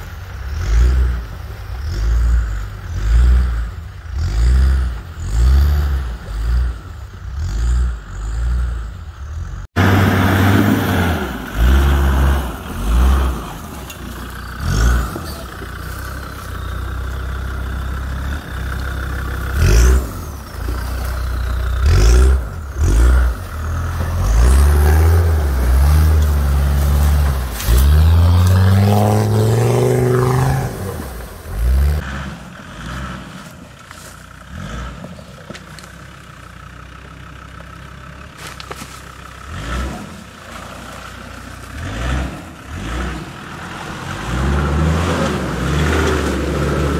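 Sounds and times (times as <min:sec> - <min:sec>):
diesel engine revving: 0:00.0 - 0:46.9.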